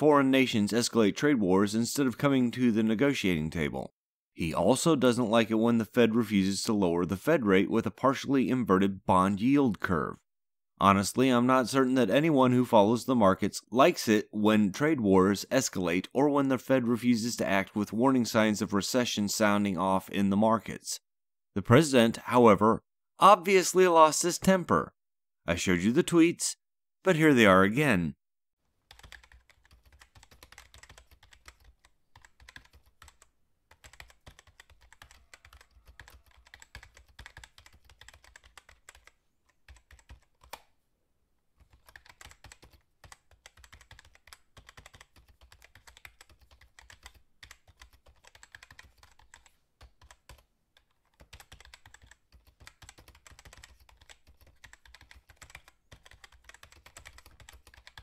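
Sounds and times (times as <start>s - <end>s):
typing on a keyboard: 28.9s - 40.7s, 41.6s - 58.0s.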